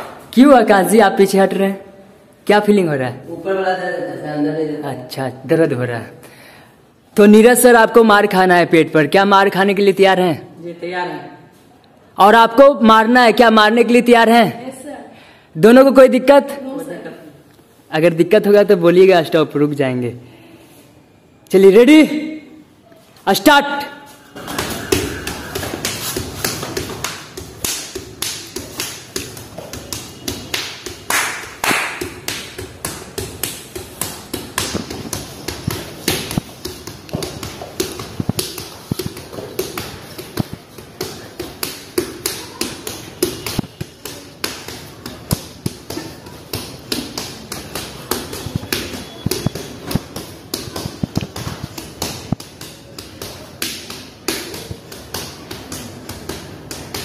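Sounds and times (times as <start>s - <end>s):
punches landing with slapping thuds: 24.4s - 57.0s.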